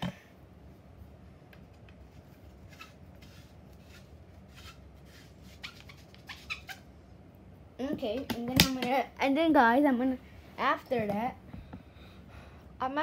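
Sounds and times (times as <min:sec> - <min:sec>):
chalk scraping on cue tip: 0:02.6 - 0:06.7.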